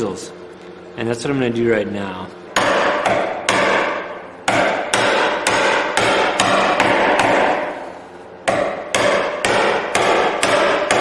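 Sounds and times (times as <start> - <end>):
wood chisel being struck: 2.6 - 7.8, 8.4 - 11.0.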